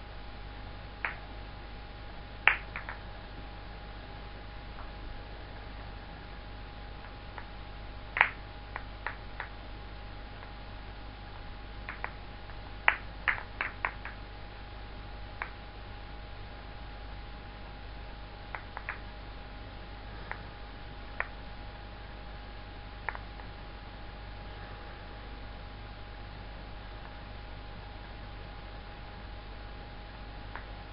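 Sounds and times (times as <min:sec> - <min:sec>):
acrylic balls clicking together: 0:02.4 - 0:03.0, 0:08.2 - 0:09.6, 0:11.9 - 0:12.2, 0:12.8 - 0:14.2, 0:18.5 - 0:19.0.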